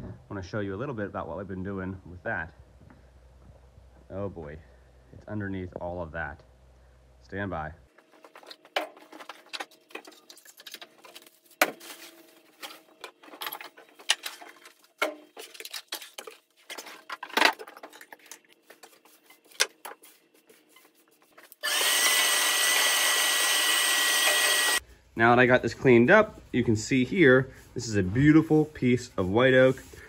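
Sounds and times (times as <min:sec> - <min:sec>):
tools clattering on workbench: 0:08.2 - 0:18.5
shop vacuum whine: 0:21.6 - 0:24.8.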